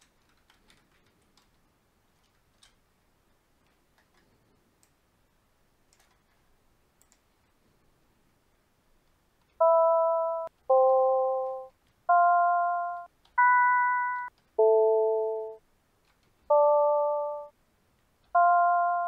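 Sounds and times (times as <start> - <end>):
synthesized glockenspiel notes: 9.6 - 15.6, 16.5 - 17.5, 18.4 - 19.0.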